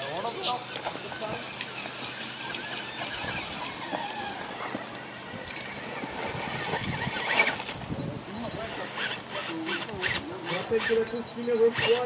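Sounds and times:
tyres grinding over gravel: 0.0s - 7.8s
electric motor whining: 0.0s - 12.0s.

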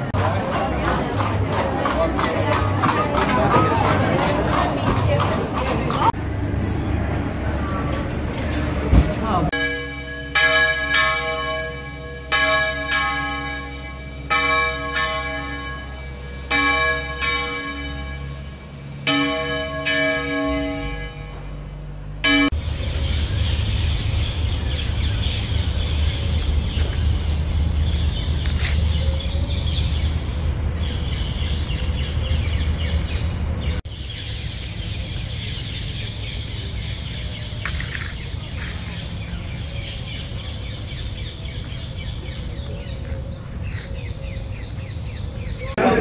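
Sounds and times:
steady low rumble: 5.4s - 46.0s
birds chirping: 22.4s - 46.0s.

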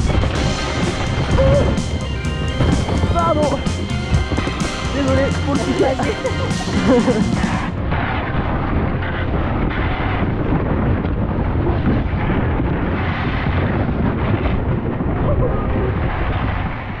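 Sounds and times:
plastic hull scraping over snow: 0.0s - 8.2s.

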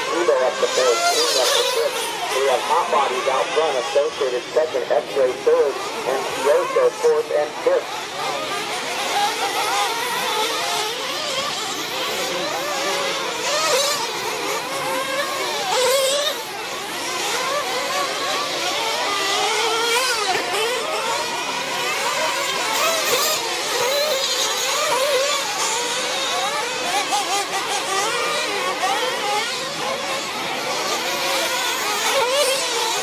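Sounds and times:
small rc engines revving: 0.0s - 33.0s.

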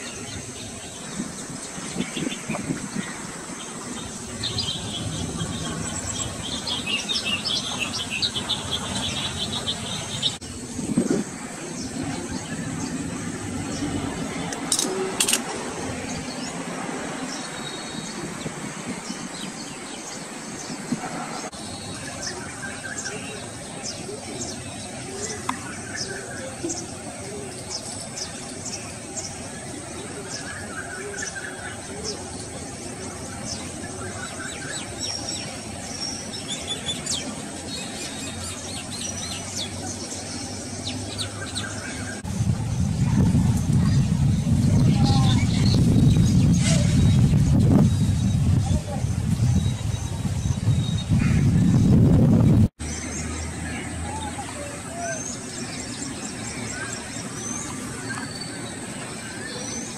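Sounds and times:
birds chirping: 0.0s - 59.9s
distant traffic hum: 0.0s - 59.9s
low rumble: 42.2s - 52.7s.

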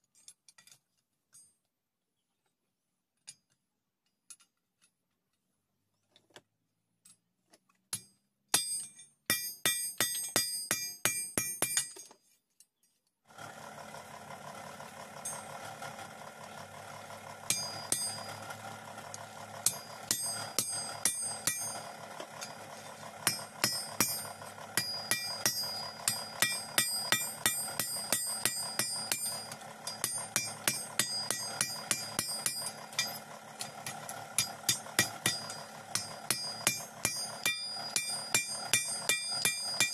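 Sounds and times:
hammer striking iron on anvil: 7.9s - 12.1s, 17.5s - 18.4s, 19.6s - 22.6s, 23.2s - 39.9s.

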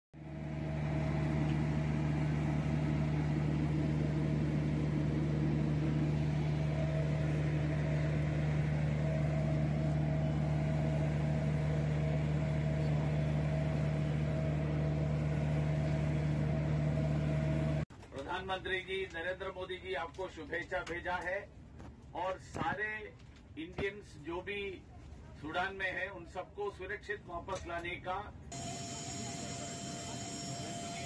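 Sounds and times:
higher steady tone: 0.2s - 17.8s
low machinery hum: 0.2s - 31.0s.

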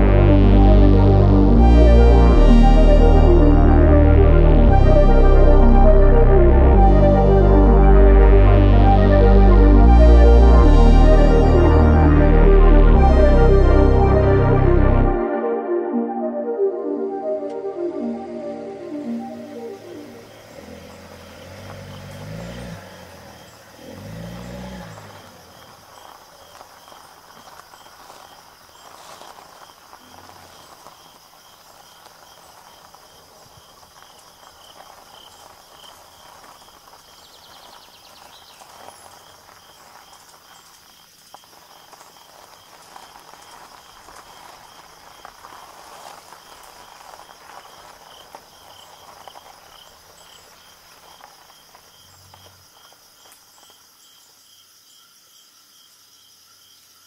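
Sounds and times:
music track: 0.0s - 21.2s
insects chirping: 16.6s - 57.0s.

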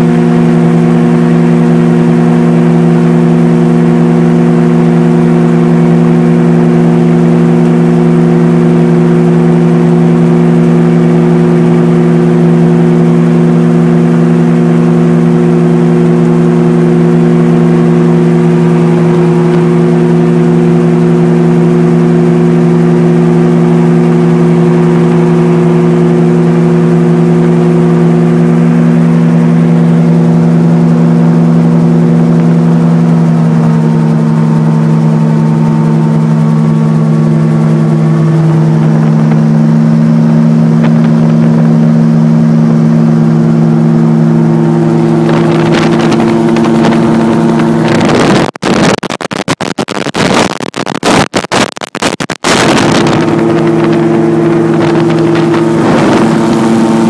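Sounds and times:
aircraft engine and propeller droning: 0.0s - 48.4s, 52.4s - 57.0s
wind buffeting microphone: 44.8s - 48.5s, 52.5s - 57.0s.

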